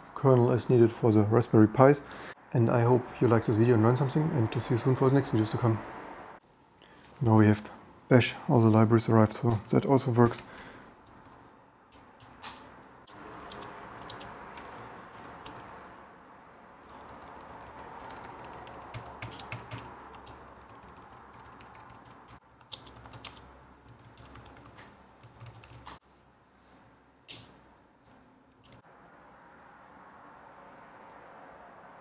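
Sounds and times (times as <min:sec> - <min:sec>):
faint steady hiss: 0:00.0 - 0:13.4
keyboard typing clicks: 0:11.1 - 0:15.7, 0:16.8 - 0:26.0, 0:28.5 - 0:28.8.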